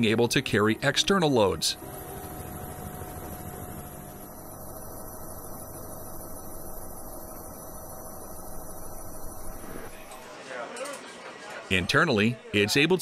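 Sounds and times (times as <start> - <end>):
helicopter engine and rotor: 1.7 - 9.9.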